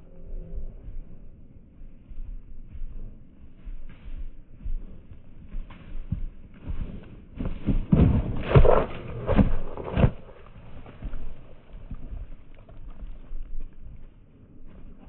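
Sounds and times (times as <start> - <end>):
horse hooves thudding: 0.0 - 15.0.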